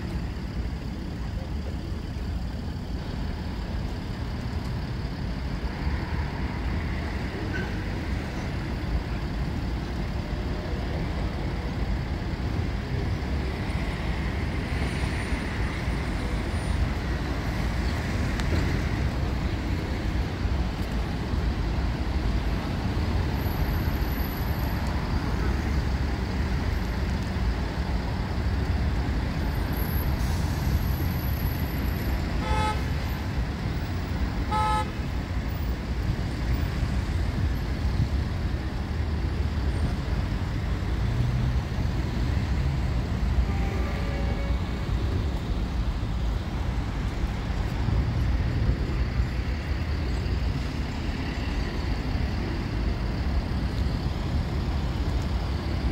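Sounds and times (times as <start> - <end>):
city traffic rumble: 0.0 - 55.9
car horn toots: 32.4 - 32.9, 34.5 - 35.0.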